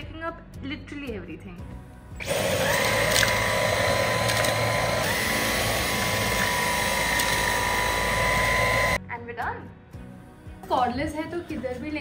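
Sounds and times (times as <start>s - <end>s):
vacuum motor whine: 2.2s - 9.0s.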